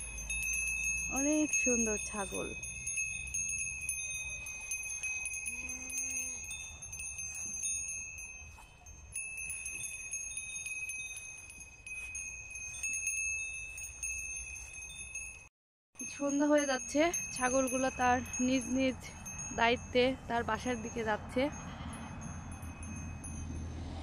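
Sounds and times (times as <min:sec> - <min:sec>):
goat bells tinkling and clanking: 0:00.0 - 0:23.6.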